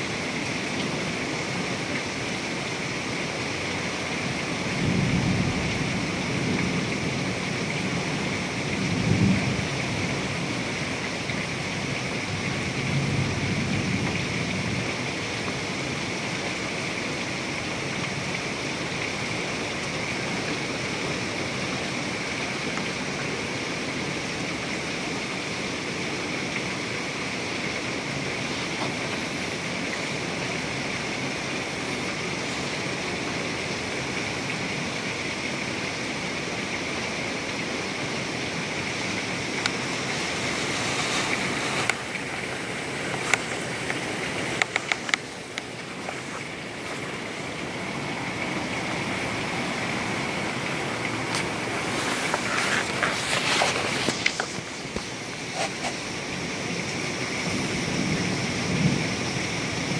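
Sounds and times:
heavy rain pouring: 0.0 - 59.9
thunder rumbling: 4.6 - 15.0, 57.3 - 59.9.

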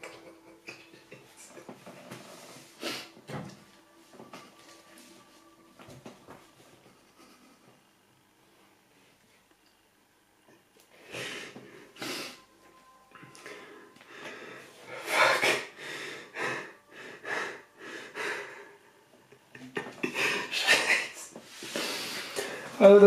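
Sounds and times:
man's breathy laughter: 19.5 - 21.4.

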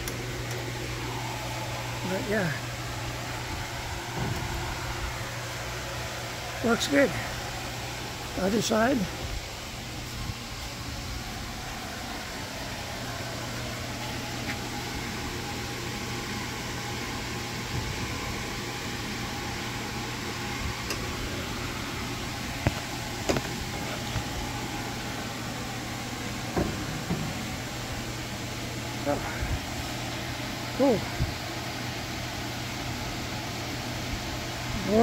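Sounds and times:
low hum: 0.0 - 15.8.

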